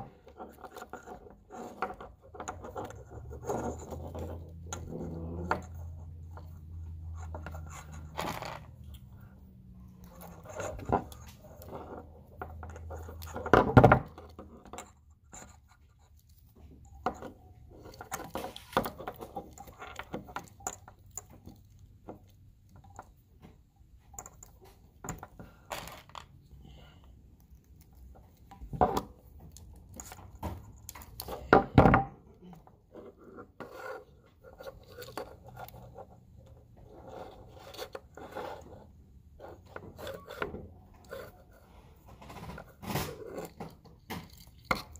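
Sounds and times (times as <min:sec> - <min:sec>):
hands twisting wires: 0:00.0 - 0:44.9.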